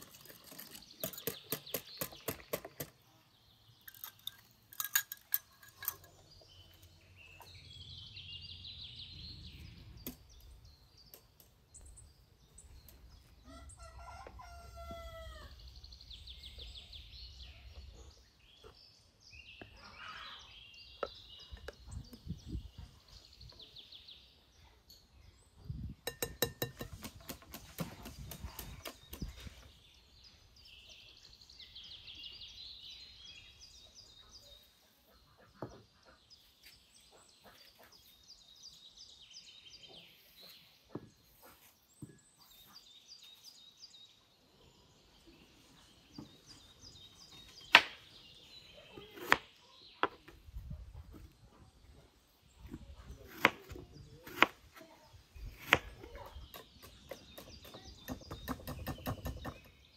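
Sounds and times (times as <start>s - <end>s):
small birds chirping: 0.0s - 59.9s
rooster crowing: 13.5s - 15.6s.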